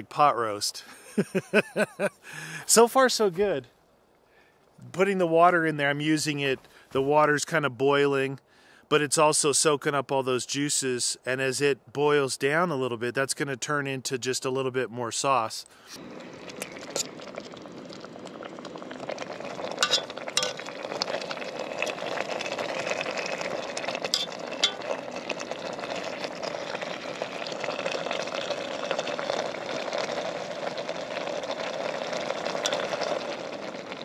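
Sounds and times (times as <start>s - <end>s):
liquid boiling in a pot: 15.8s - 34.0s.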